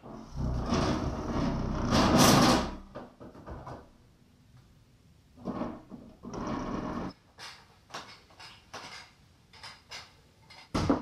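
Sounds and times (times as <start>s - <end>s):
furniture scraping on wood: 0.0s - 2.8s.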